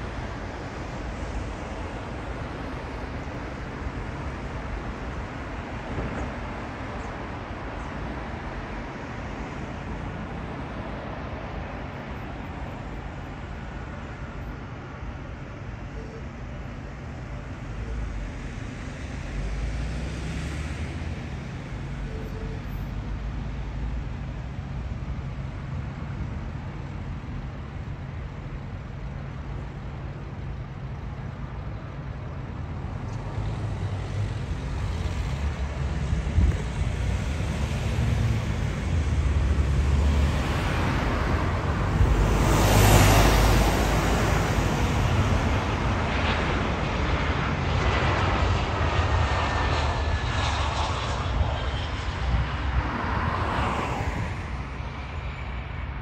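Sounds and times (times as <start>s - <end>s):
jet airliner engine roar: 0.0s - 56.0s
wind rumble on microphone: 32.7s - 56.0s.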